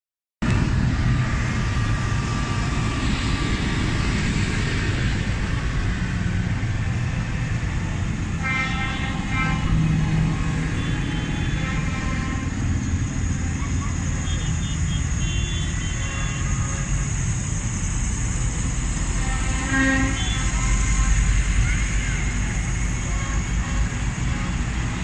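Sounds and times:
tractor diesel engines: 0.4 - 25.0
horn sounding: 8.1 - 17.3, 19.1 - 25.0.

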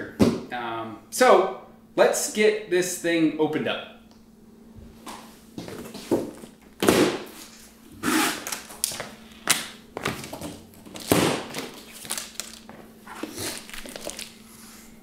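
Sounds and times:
thuds against cardboard: 6.1 - 7.3
plastic straps snapping: 8.3 - 12.8.

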